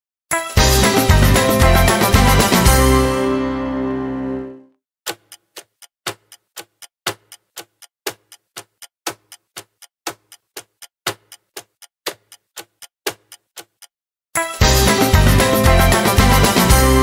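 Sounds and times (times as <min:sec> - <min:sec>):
clock ticking: 0:05.1 - 0:16.8.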